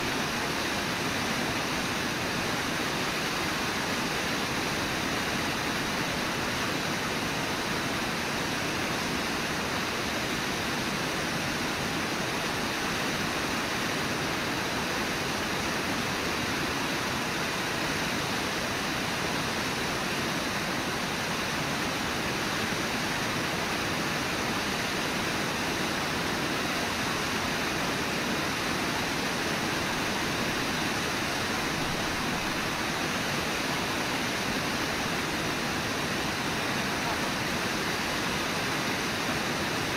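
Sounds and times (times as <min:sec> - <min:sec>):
whitewater rapids rushing: 0:00.0 - 0:39.9.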